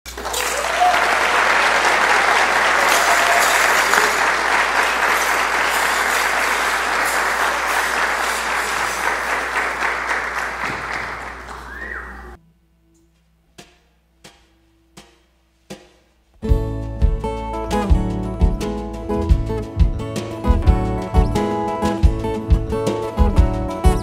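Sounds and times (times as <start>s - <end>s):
audience applauding: 0.1s - 12.4s.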